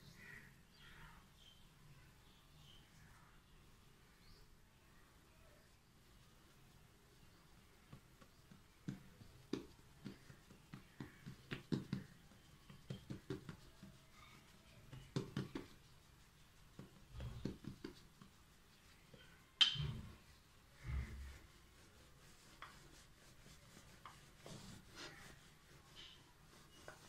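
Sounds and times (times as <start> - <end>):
hands patting dough: 7.3 - 20.1.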